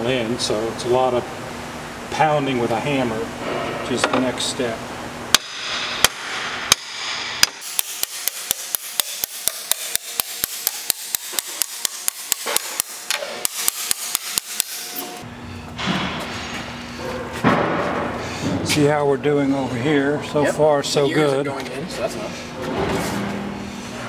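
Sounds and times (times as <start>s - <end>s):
hammer pounding metal: 5.3s - 16.4s.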